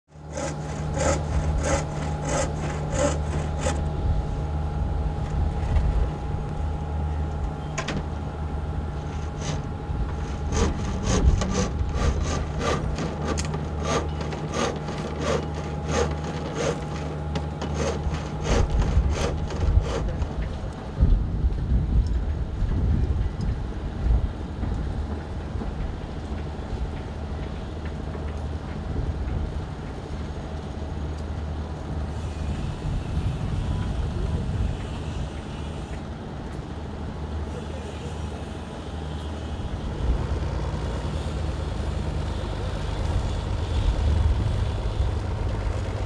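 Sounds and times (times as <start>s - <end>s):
boat engine hum: 0.1s - 21.0s, 23.6s - 46.0s
regular scraping or knocking: 0.3s - 3.8s, 9.1s - 20.6s.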